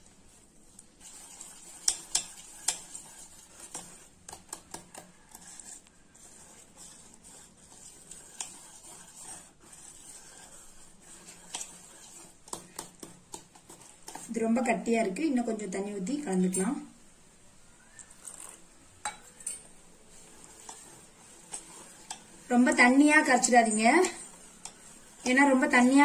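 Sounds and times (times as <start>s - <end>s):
whisk stirring thick batter: 0.0s - 16.6s, 17.8s - 26.0s
whisk clinking against bowl: 1.0s - 5.0s, 19.0s - 19.7s.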